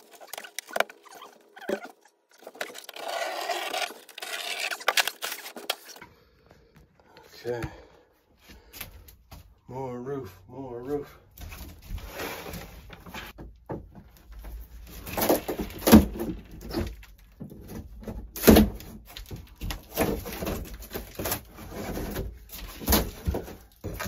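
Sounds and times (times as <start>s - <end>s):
wood scraping: 0.0s - 6.2s, 14.0s - 24.0s.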